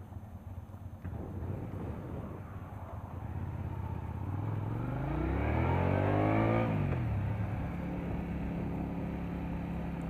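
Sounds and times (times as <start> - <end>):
motorcycle engine rumbling: 0.0 - 10.0
wind on microphone: 1.0 - 4.7.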